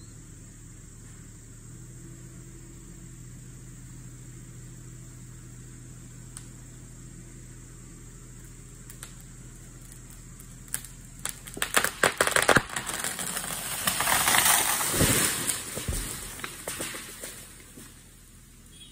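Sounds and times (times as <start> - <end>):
tree trunk cracking and snapping: 8.4 - 18.0
tree crown rushing through branches: 11.4 - 17.8
heavy thuds on ground: 14.4 - 18.0.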